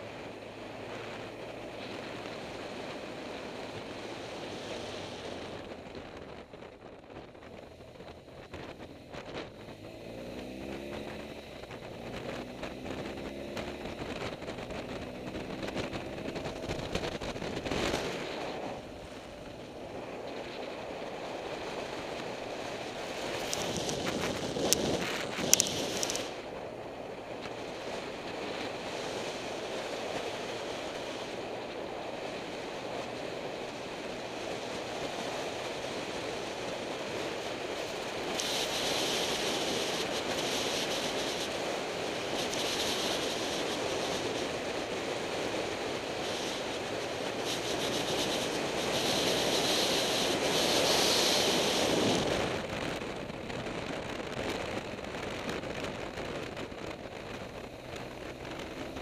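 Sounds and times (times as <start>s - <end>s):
wind rushing over microphone: 0.0s - 59.0s
harsh hiss: 45.4s - 52.4s.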